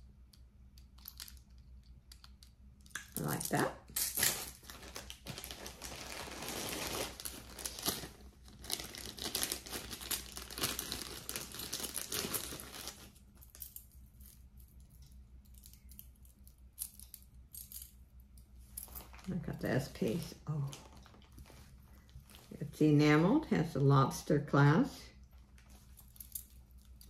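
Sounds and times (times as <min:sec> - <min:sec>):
packaging bags crinkling: 0:03.2 - 0:13.4, 0:18.9 - 0:22.6.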